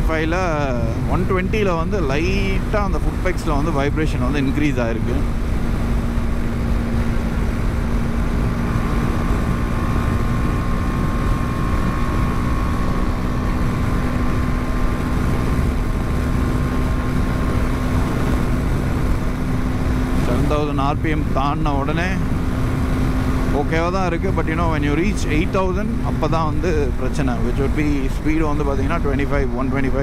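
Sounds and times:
motorcycle engine cruising: 0.0s - 30.0s
wind rush on microphone: 5.0s - 30.0s.

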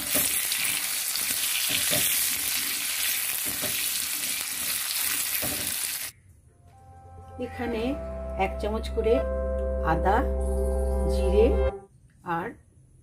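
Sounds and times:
potatoes sizzling in hot oil: 0.0s - 6.1s.

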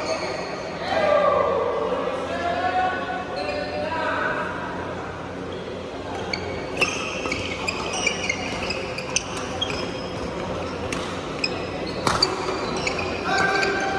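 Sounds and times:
shoes squeaking on wooden floor: 6.3s - 13.9s.

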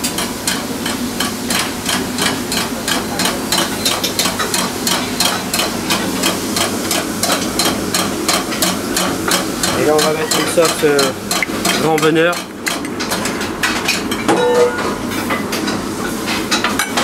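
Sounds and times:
rhythmic sharp knocking: 0.2s - 13.3s.

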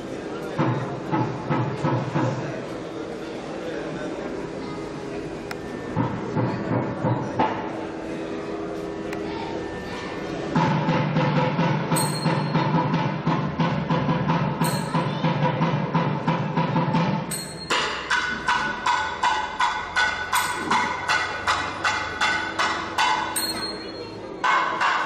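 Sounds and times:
drums played fast: 10.6s - 23.3s
small cymbals clashing: 11.9s - 13.2s, 14.4s - 15.4s, 17.0s - 25.0s.

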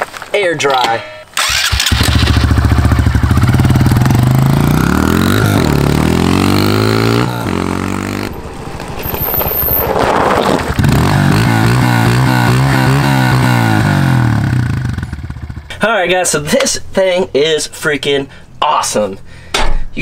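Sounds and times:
dirt bike engine revving: 1.4s - 15.7s.

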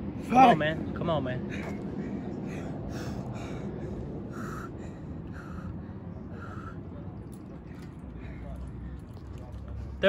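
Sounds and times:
man breathing hard: 1.5s - 7.0s.

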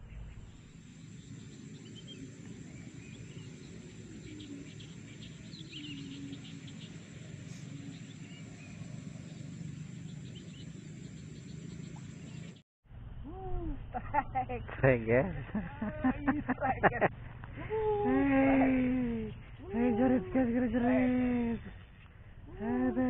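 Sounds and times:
faint bird chirps: 0.0s - 12.6s
low rumble: 0.0s - 23.0s.

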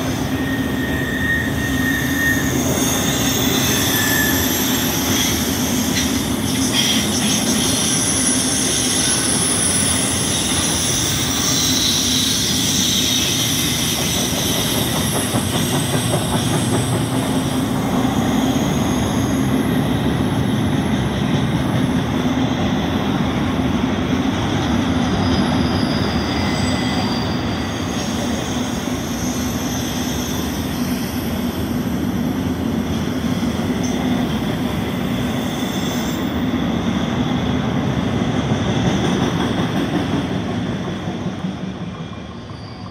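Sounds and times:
high-pitched wheel squeal: 0.0s - 14.8s, 18.0s - 19.7s, 25.0s - 31.4s
steel wheels rumbling on rail: 0.0s - 42.9s.

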